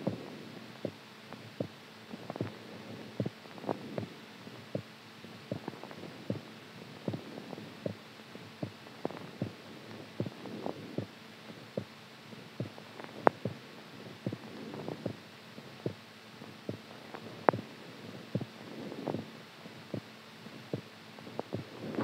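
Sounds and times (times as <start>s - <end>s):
steady low hum: 0.0s - 22.0s
heartbeat thuds: 1.6s - 2.6s, 3.2s - 4.1s, 5.5s - 6.5s, 7.1s - 8.0s, 8.6s - 9.6s, 10.2s - 11.1s, 12.6s - 13.6s, 14.2s - 15.2s, 16.6s - 17.7s, 18.3s - 19.3s, 19.9s - 20.1s, 20.7s - 22.0s.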